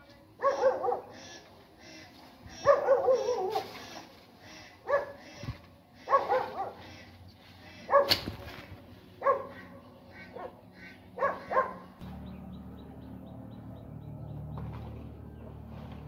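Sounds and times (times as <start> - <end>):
dog barking: 0.4 - 1.2, 2.6 - 3.7, 4.8 - 5.2, 6.0 - 6.9, 7.9 - 8.2, 9.2 - 10.6, 11.2 - 11.9
steady low hum: 3.8 - 16.0.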